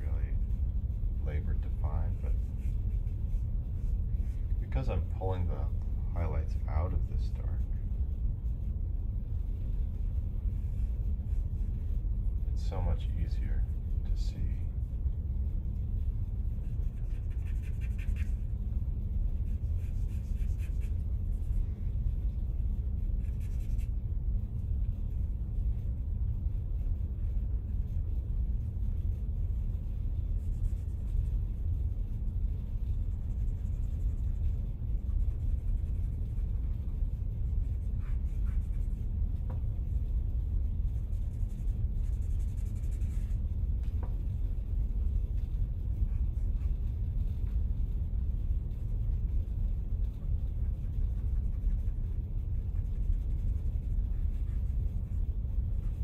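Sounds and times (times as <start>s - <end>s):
steady low rumble: 0.0s - 56.0s
charcoal scratching on paper: 1.3s - 5.5s, 16.5s - 21.8s, 22.5s - 25.2s, 28.8s - 56.0s.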